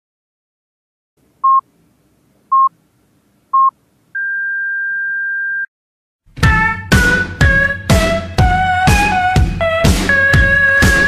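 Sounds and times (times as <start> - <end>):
long high-pitched beep: 3.6 - 5.7
short electronic beeps: 3.6 - 5.7.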